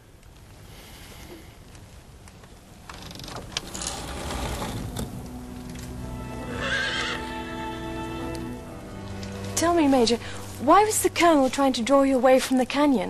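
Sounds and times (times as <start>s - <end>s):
film score music: 3.6s - 12.4s
horse whinnying: 6.2s - 8.3s.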